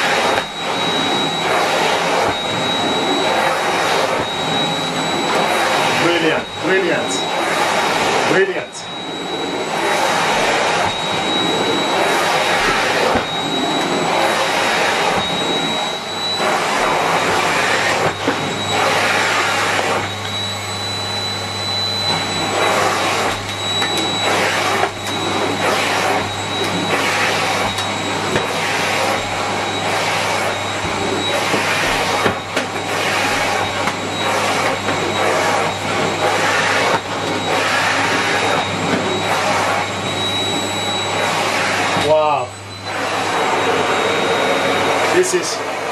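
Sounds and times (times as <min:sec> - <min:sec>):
vacuum cleaner running on carpet: 0:00.0 - 0:45.9.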